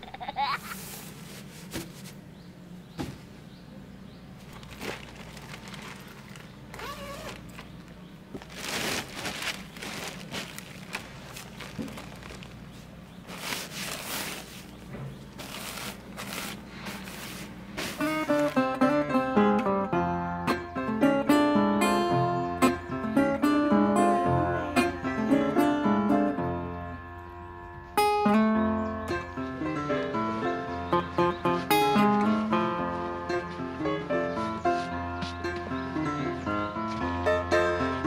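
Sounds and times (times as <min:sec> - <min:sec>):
nylon tent bag rustling: 0:04.5 - 0:18.9.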